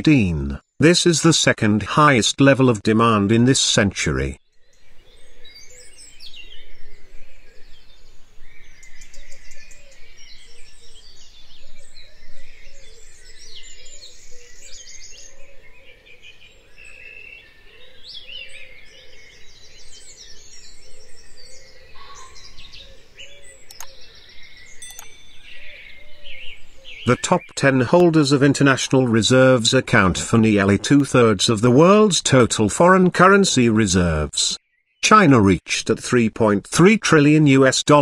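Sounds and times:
birds chirping and singing: 4.5 - 34.1
low-pitched repeating bird call: 24.8 - 32.1.

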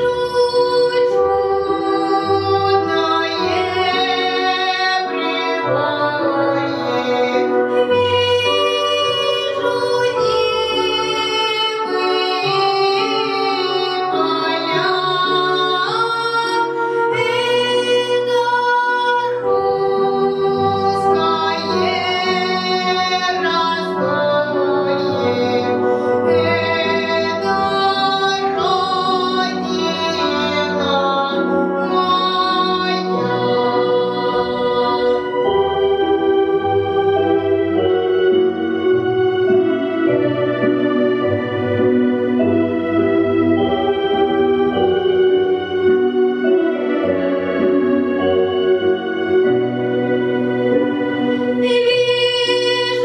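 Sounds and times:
boy singing folk song: 0.0 - 35.3, 51.6 - 53.0
instrumental accompaniment: 0.0 - 53.0.

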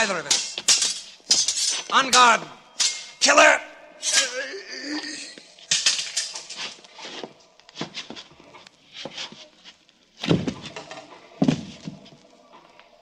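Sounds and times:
sword blades clashing: 0.0 - 7.2
scuffling steps: 5.3 - 12.7.

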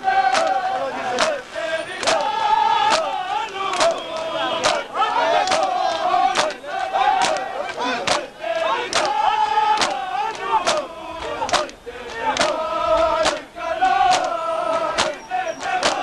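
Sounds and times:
crowd of men chanting: 0.0 - 16.0
chest beating slaps: 7.2 - 8.3, 8.9 - 9.2, 9.8 - 11.8, 14.1 - 15.2.

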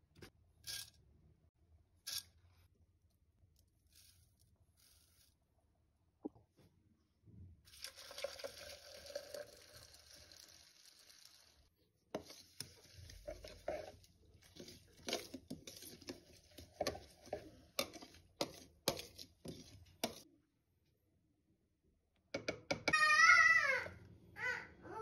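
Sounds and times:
milk pouring into plastic jug: 7.7 - 11.5.

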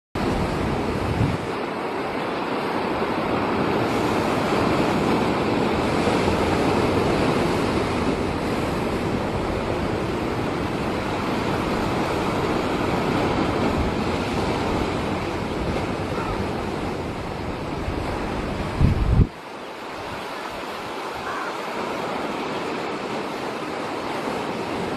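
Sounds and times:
sea surf rushing: 0.2 - 24.9
wind buffeting microphone: 0.2 - 24.9.

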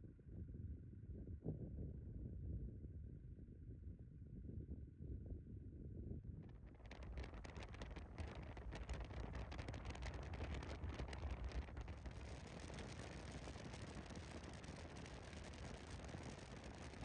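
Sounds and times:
wind buffeting microphone: 5.7 - 17.0.

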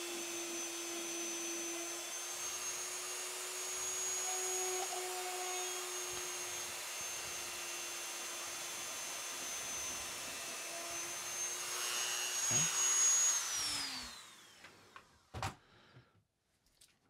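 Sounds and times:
drill bit cutting plastic: 0.0 - 14.6
rotary tool whining: 0.0 - 15.0.

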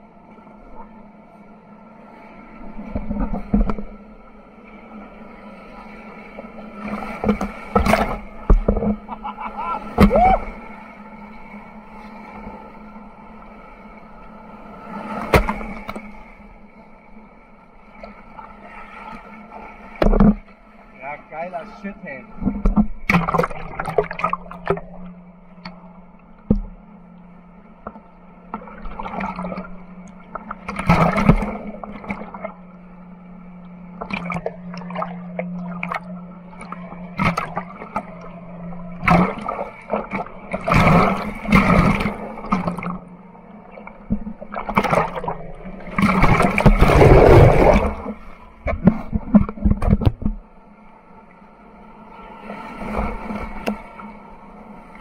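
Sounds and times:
steady low hum: 0.0 - 55.0
water gurgling: 21.3 - 25.2, 34.0 - 50.4
whitewater rushing and splashing: 44.5 - 50.0.

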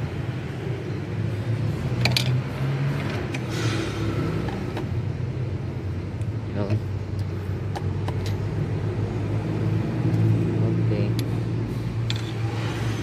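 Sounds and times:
wrench metallic clicks and scrape: 12.0 - 13.0.

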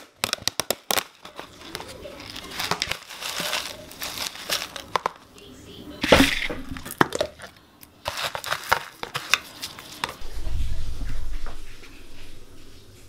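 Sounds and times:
low rumble: 10.2 - 13.0.

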